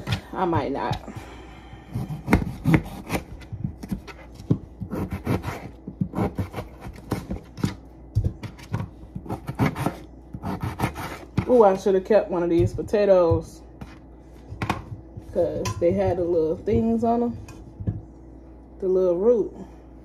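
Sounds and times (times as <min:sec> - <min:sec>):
knife chopping on cutting board: 0:01.9 - 0:11.7
knife scraping board: 0:02.0 - 0:07.7, 0:08.7 - 0:11.6.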